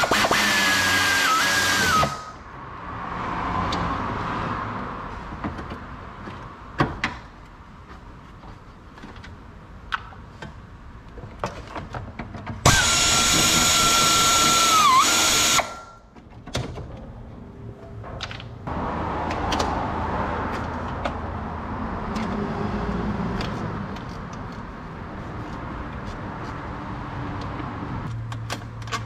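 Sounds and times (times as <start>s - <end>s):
power tool motor whining: 0.0s - 2.3s, 12.7s - 15.9s.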